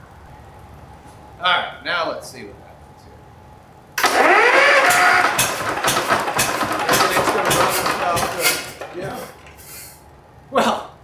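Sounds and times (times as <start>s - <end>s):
electric starter whine: 4.0s - 9.8s
diesel engine churning: 4.0s - 10.0s.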